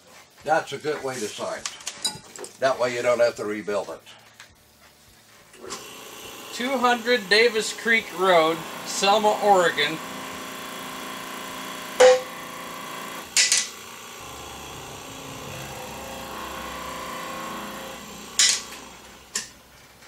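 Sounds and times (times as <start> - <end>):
steady shop hum: 0.0 - 20.0
metal clanks from shop press: 18.4 - 18.8.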